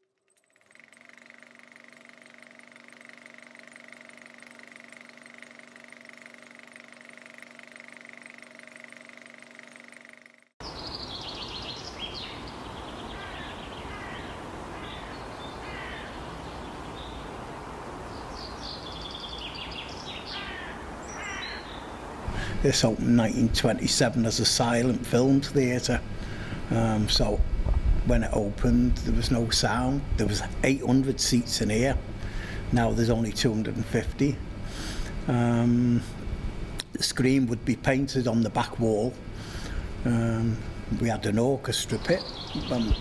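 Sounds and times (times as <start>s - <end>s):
hum of held tones: 0.0s - 43.0s
birds chirping: 10.6s - 27.3s, 38.9s - 43.0s.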